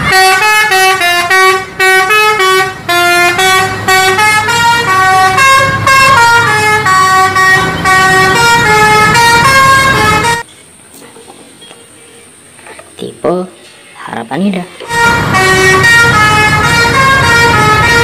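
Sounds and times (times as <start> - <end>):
musical bus horn playing a tune: 0.0 - 10.5, 14.8 - 18.0.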